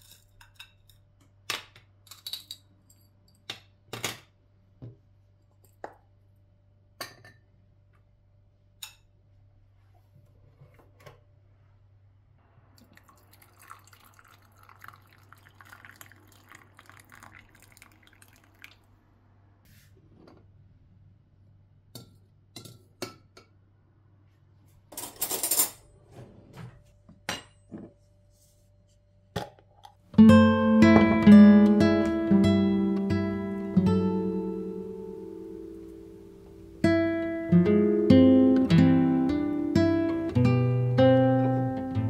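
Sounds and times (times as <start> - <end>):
water pouring into glass cup: 12.8 - 18.9.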